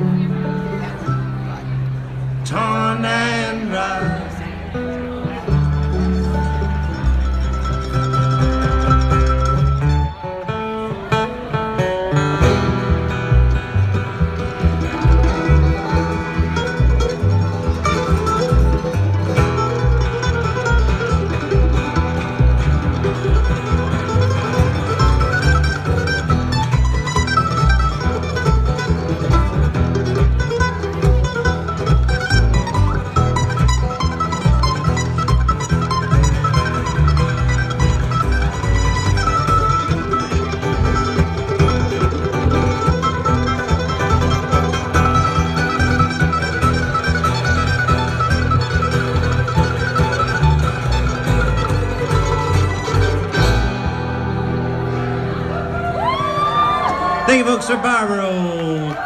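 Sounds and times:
upright bass notes: 0.0s - 55.8s
mandolin: 0.0s - 57.4s
acoustic guitar: 0.0s - 58.1s
fiddle: 0.0s - 58.3s
bluegrass string band playing: 0.0s - 59.0s.

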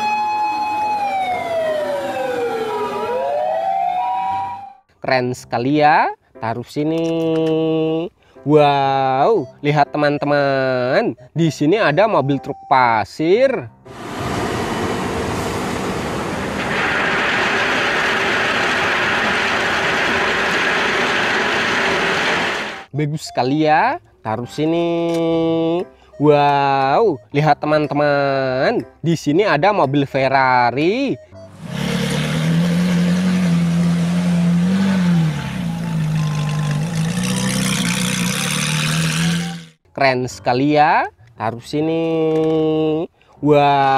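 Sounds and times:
truck engine running: 13.9s - 22.9s, 31.4s - 39.8s
sports car engine revving: 31.4s - 39.8s.

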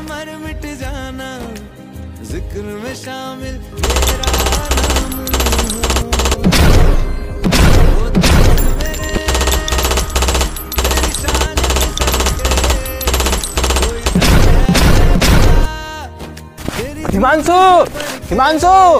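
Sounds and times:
background music: 0.0s - 18.9s
automatic gunfire: 3.8s - 15.7s.

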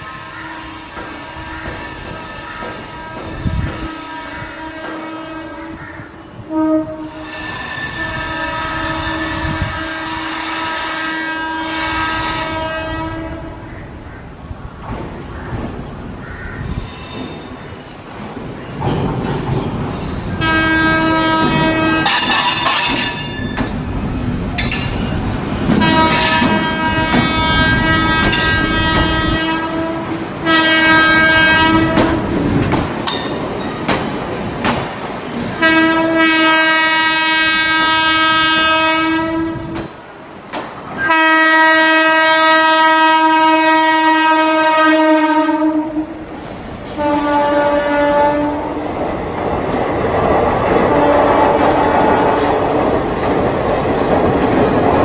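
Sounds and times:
train horn blasts: 0.0s - 13.7s, 20.4s - 22.7s, 25.7s - 32.4s, 35.6s - 39.9s, 41.0s - 46.3s, 46.9s - 48.9s, 50.8s - 52.4s
train coaches rumbling past: 0.0s - 55.0s.

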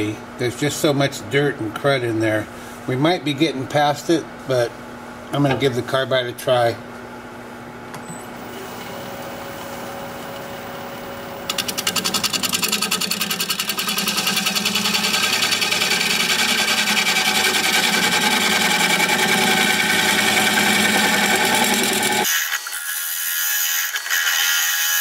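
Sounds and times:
wood lathe running: 8.6s - 22.4s
turning tool cutting wood rattle: 11.5s - 25.0s.

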